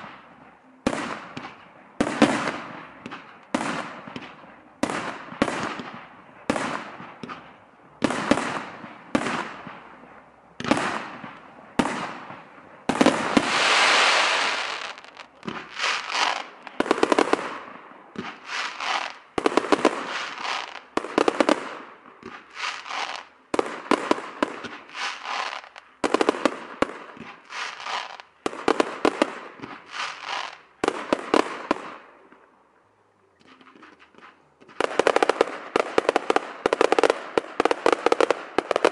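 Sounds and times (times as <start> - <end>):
loud rushing hiss: 13.2 - 16.4.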